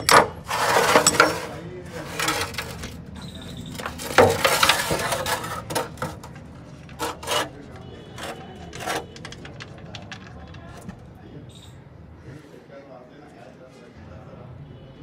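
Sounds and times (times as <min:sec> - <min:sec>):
metal tray clanking and scraping: 0:00.0 - 0:11.1.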